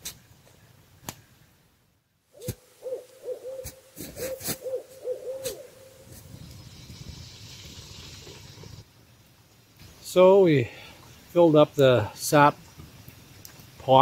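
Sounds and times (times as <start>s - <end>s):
owl hooting: 2.3s - 6.2s
wood fire crackling: 2.4s - 14.0s
hiss of fire and boiling sap: 5.4s - 14.0s.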